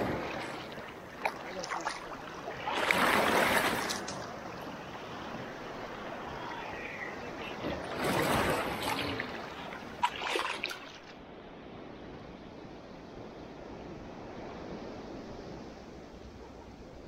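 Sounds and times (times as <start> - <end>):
waves splashing over person: 0.0 - 11.2.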